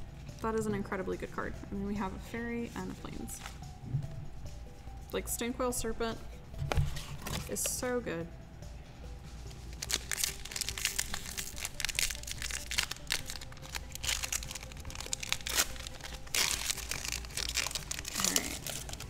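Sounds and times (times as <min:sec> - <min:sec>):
foil wrapper crinkling and tearing: 0:09.8 - 0:19.0.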